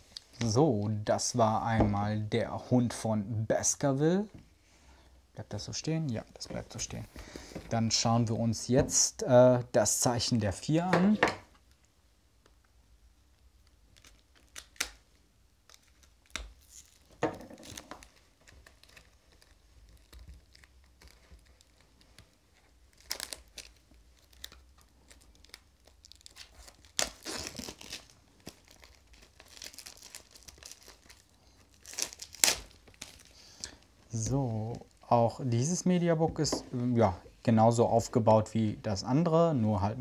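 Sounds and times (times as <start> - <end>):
plastic film crinkling and tearing: 13.6 - 35.1.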